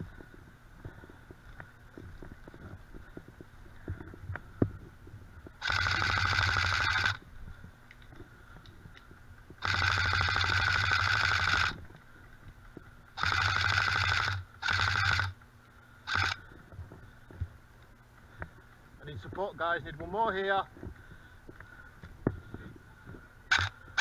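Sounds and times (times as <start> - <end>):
airsoft rifle full-auto bursts: 5.6 - 7.2, 9.6 - 11.8, 13.2 - 15.4, 16.1 - 16.4, 23.5 - 24.0.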